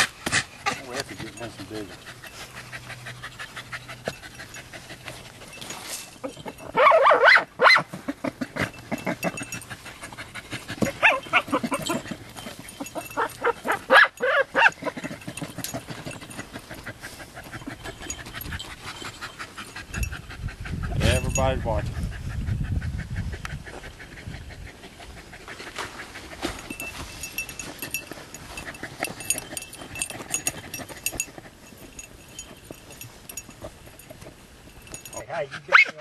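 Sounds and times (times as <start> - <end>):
dogs barking and whining: 0.0 - 22.2, 23.3 - 36.0
dogs panting: 0.0 - 36.0
scuffling: 25.5 - 35.2.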